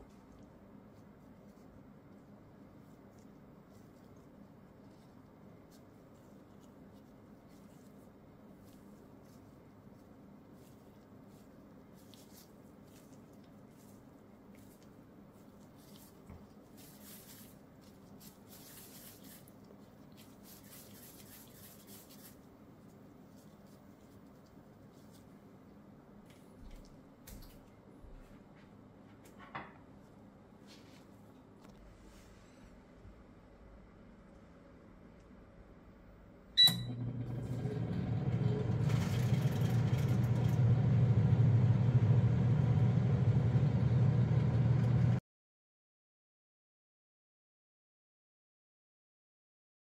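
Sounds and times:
mashed potato squishing: 0:00.0 - 0:25.7
disposable gloves rustling: 0:00.0 - 0:27.8
low steady hum: 0:00.0 - 0:45.2
air fryer beep: 0:36.6 - 0:37.4.

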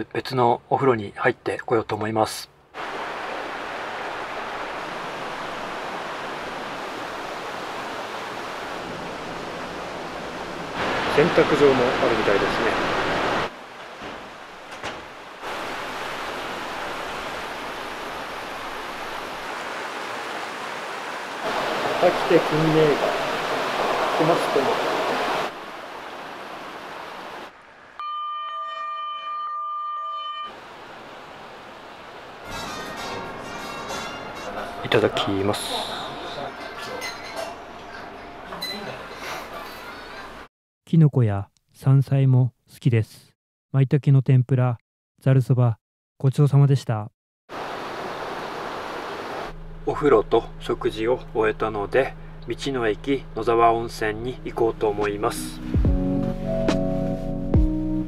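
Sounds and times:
water running: 0:02.8 - 0:27.4, 0:31.3 - 0:40.5
background hiss: 0:30.5 - 0:40.4.

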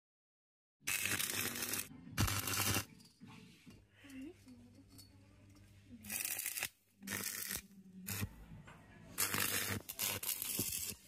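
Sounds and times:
welding crackling: 0:00.9 - 0:02.9, 0:06.1 - 0:08.3, 0:09.2 - 0:11.0.

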